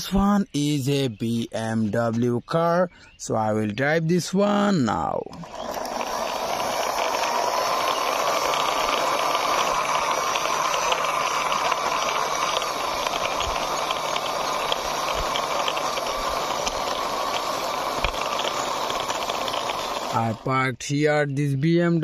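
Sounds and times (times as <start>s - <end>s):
toy car wheels rolling on concrete: 4.9s - 20.6s.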